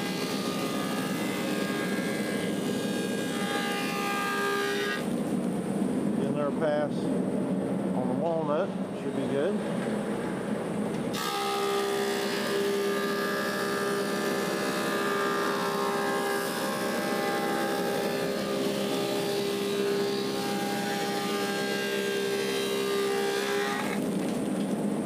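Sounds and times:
planer running: 0:00.0 - 0:05.1, 0:11.1 - 0:24.0
planer cutterhead whine: 0:00.0 - 0:05.2, 0:11.1 - 0:24.1.

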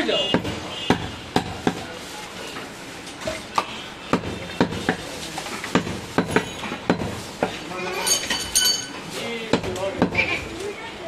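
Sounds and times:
knife chopping meat on wooden block: 0:00.3 - 0:01.8, 0:04.1 - 0:05.1.

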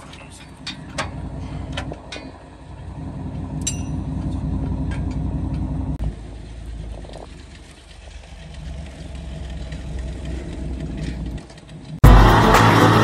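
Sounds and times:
metallic clicks and clanks: 0:00.0 - 0:02.5
truck engine idling: 0:00.0 - 0:13.0.

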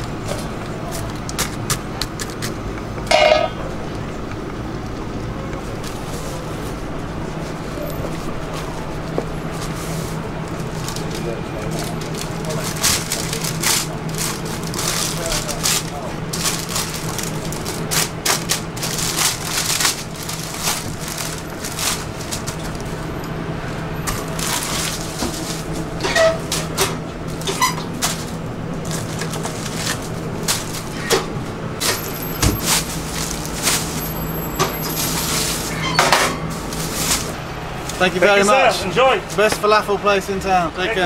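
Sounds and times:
paper crinkling: 0:09.5 - 0:23.1, 0:24.0 - 0:31.0, 0:31.8 - 0:35.8, 0:36.5 - 0:38.0.

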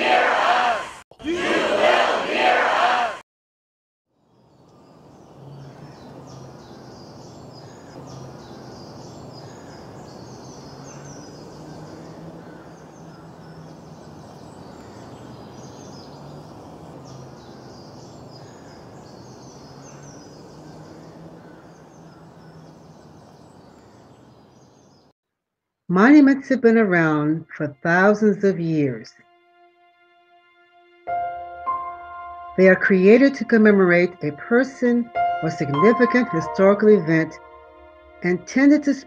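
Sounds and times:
small birds chirping: 0:04.2 - 0:25.1.

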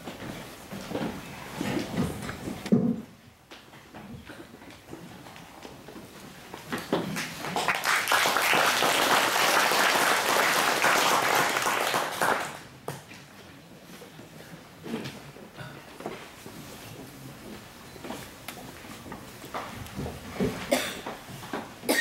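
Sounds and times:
audience applauding: 0:07.2 - 0:12.6.

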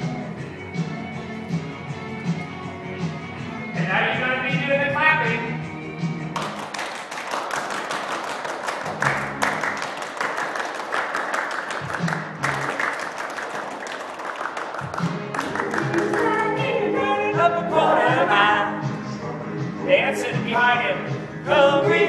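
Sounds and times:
recorded backing music: 0:00.0 - 0:22.0
children clapping: 0:06.3 - 0:16.6.

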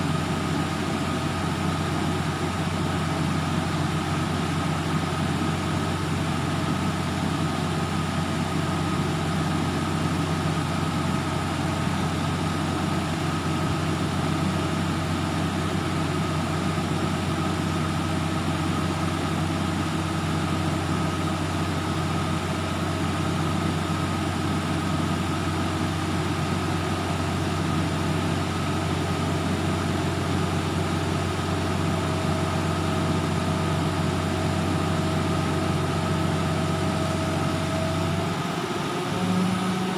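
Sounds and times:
truck engine idling: 0:00.0 - 0:38.6.

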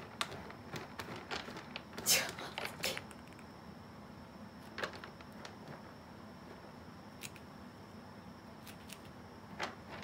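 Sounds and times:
cat litter granules rustling: 0:00.0 - 0:03.2, 0:04.6 - 0:06.0, 0:09.5 - 0:10.0
faint steady high whine: 0:00.0 - 0:10.0.

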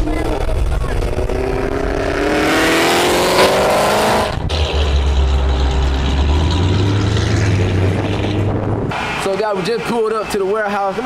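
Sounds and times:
car engine accelerating: 0:00.0 - 0:09.2
deep exhaust rumble: 0:00.0 - 0:09.3.

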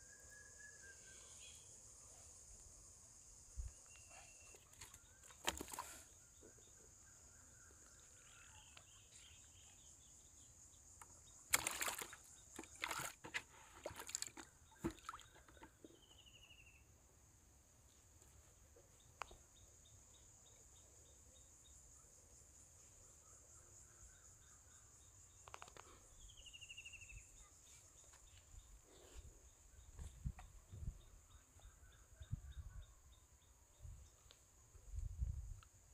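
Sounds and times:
faint bird chirps: 0:00.0 - 0:02.6, 0:03.3 - 0:13.1, 0:14.1 - 0:16.9, 0:18.8 - 0:34.4
water splashing in plastic bucket: 0:04.7 - 0:06.0, 0:11.5 - 0:15.7.

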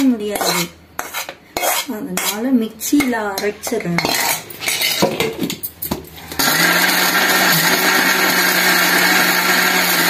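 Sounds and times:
mixer grinder running: 0:06.3 - 0:10.0.

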